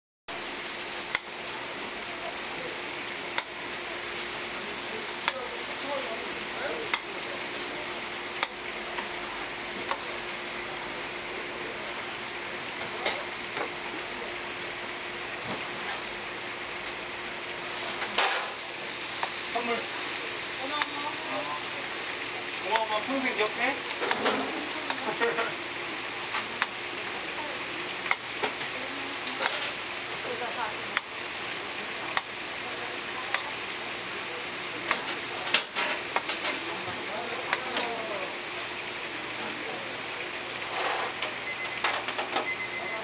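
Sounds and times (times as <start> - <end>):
patties sizzling on a griddle: 0.3 - 43.0
spatula clicking on griddle: 1.1 - 1.3, 3.3 - 3.6, 6.9 - 7.2, 8.4 - 9.1, 9.8 - 10.0, 22.7 - 23.0, 26.3 - 26.8, 27.9 - 29.8, 31.0 - 31.2, 32.1 - 32.4, 33.3 - 33.5.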